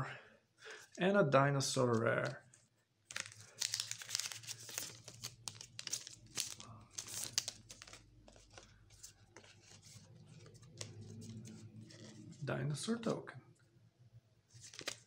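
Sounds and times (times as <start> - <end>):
trading cards flipped by hand: 3.1 - 12.3, 14.6 - 15.0.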